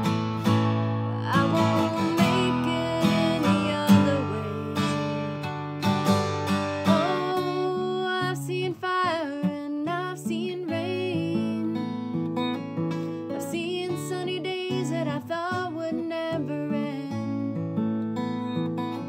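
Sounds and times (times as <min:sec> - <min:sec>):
acoustic guitar strumming: 0:00.0 - 0:19.0
woman singing: 0:01.0 - 0:05.5, 0:06.8 - 0:12.2, 0:13.2 - 0:18.4.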